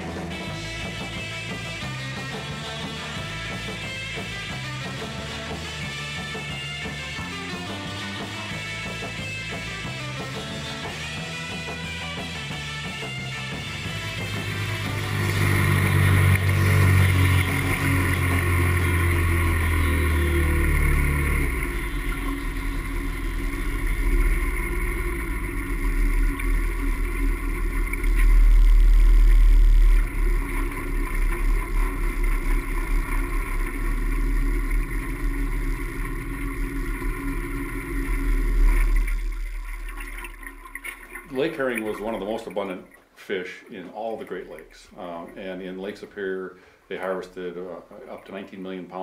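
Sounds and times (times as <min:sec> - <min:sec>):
outboard motor running: 0:00.0 - 0:42.4
low rumble: 0:13.0 - 0:42.4
water rushing along hull: 0:13.3 - 0:43.0.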